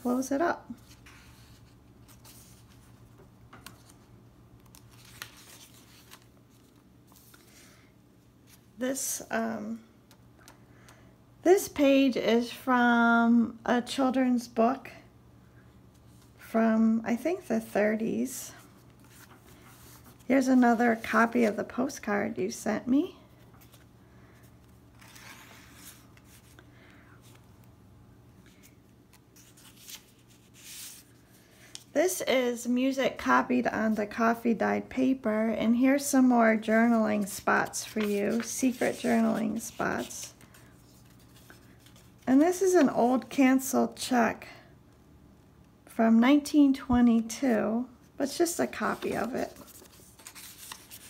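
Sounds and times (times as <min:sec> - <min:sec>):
paper pages rustling: 0:00.7 - 0:07.6, 0:18.6 - 0:21.9, 0:23.4 - 0:26.6, 0:28.5 - 0:31.9, 0:36.6 - 0:43.3, 0:48.6 - 0:51.0.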